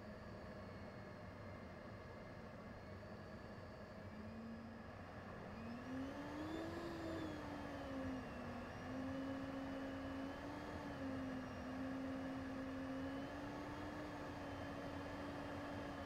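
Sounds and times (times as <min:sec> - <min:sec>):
jet engine whine: 0:00.0 - 0:16.0.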